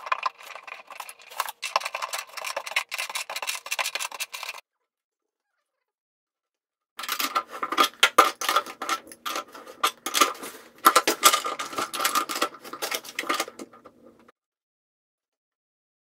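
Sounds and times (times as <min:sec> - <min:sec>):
metal tools clinking on drain: 0:00.0 - 0:04.6, 0:07.0 - 0:14.3.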